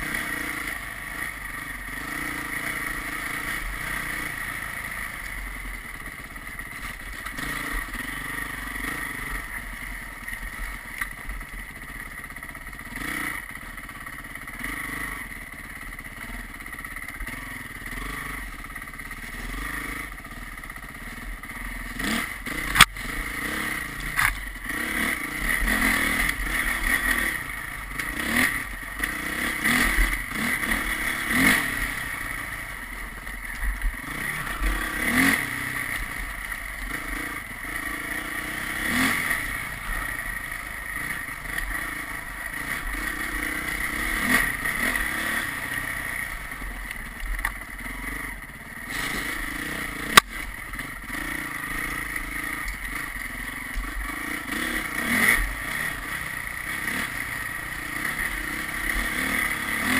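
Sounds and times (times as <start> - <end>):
vehicle engine running: 0.0 - 59.9
sharp click: 22.6 - 23.0.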